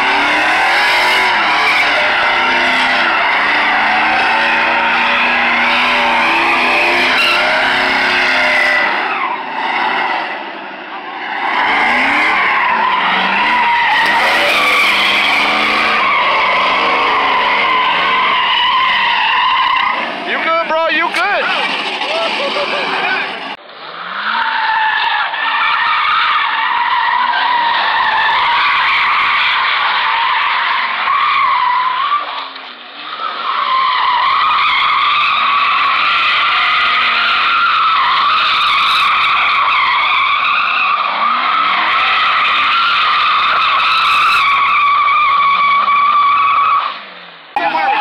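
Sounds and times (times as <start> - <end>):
car engine revving: 0.0 - 24.6
tyres squealing: 11.4 - 23.6, 33.2 - 48.0.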